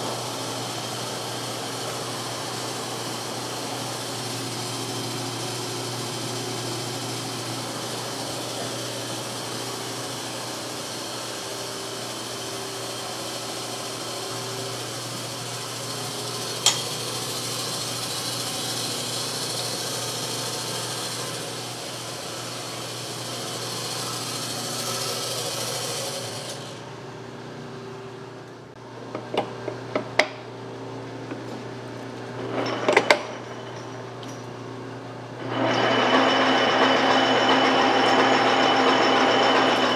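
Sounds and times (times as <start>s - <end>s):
metal lathe humming: 0.0s - 27.0s, 35.3s - 39.9s.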